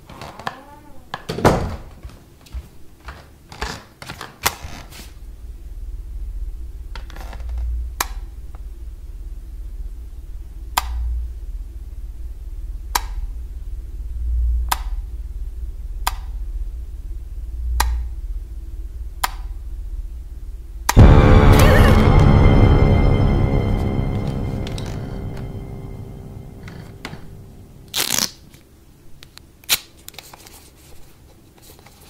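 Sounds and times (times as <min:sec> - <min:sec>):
low steady hum: 0:05.2 - 0:28.3.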